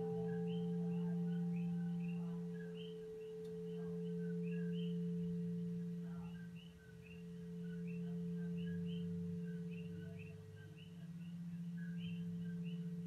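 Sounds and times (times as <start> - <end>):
singing bowl humming: 0.0 - 13.0.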